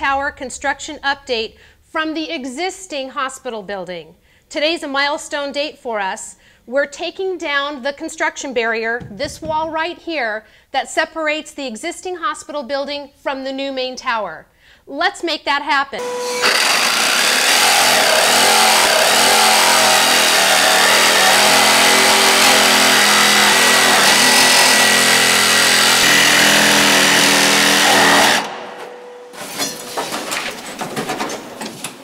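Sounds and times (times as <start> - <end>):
knocks and rattles of panel: 9.0 - 9.8, 29.8 - 32.0
vacuum running: 16.0 - 30.5
power saw cutting drywall: 16.0 - 30.6.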